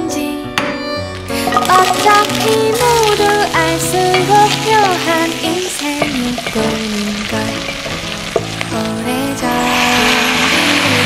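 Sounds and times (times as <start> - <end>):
background music: 0.0 - 11.0
food sizzling in oil: 1.2 - 11.0
wooden spatula stirring: 1.4 - 8.9.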